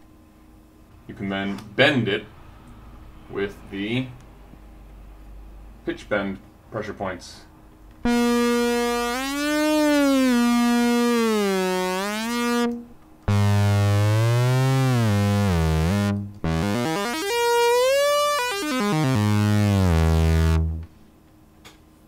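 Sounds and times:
synthesizer notes bending in pitch: 0:08.0 - 0:20.9.

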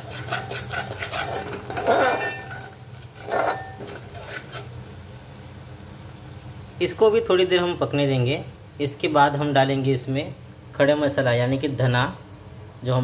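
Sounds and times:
metal spoon scraping metal pot: 0:00.0 - 0:04.7.

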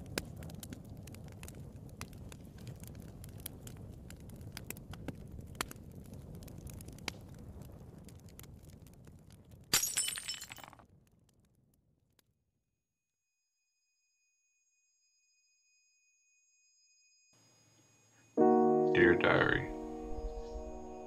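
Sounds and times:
glass shattering: 0:09.7 - 0:10.8.

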